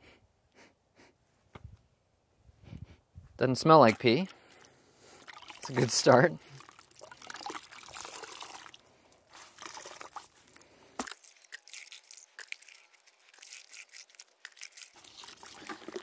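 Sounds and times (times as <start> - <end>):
cloth splashing in bucket of water: 5.2 - 10.4.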